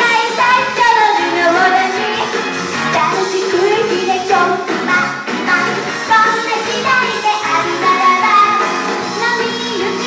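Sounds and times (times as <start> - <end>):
upbeat pop backing track: 0.0 - 10.0.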